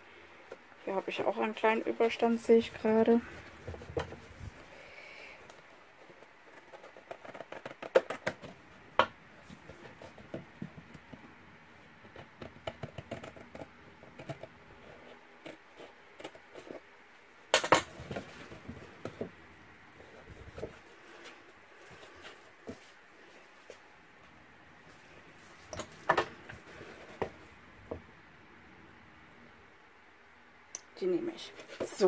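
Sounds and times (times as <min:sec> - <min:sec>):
card rustling and scraping: 0:20.0 - 0:23.8.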